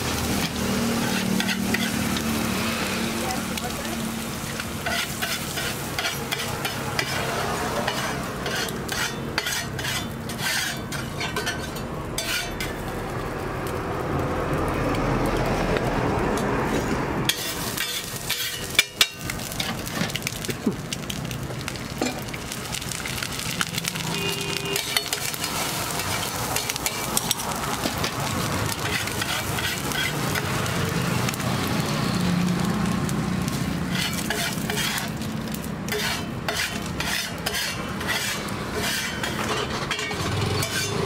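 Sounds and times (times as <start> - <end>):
metal spatula scraping griddle: 0.0 - 3.7, 4.4 - 12.9, 16.7 - 20.3, 23.1 - 30.6, 33.5 - 41.0
egg sizzling in oil: 0.0 - 14.2, 17.3 - 41.0
blade clicking on griddle: 33.0 - 41.0.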